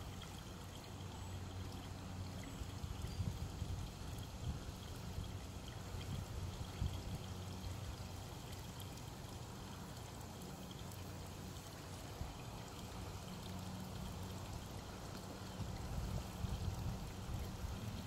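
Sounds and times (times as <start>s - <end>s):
low steady hum: 0.0s - 18.0s
pool water trickling and lapping: 0.0s - 18.0s.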